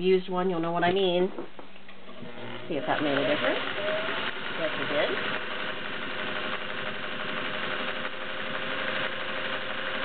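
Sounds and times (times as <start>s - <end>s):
sewing machine sewing: 2.2s - 10.0s.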